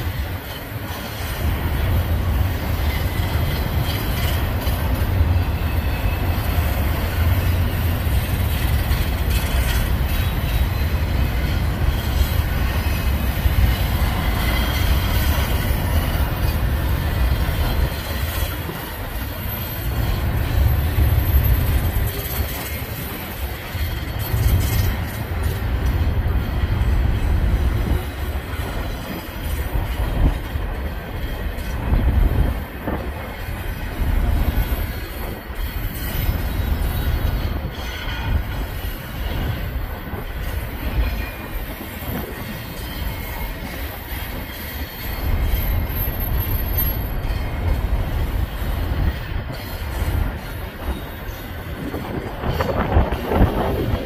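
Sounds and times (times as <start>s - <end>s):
train wheels rumbling on rail: 0.0s - 54.0s
high wheel squeal: 5.2s - 25.2s, 33.8s - 54.0s.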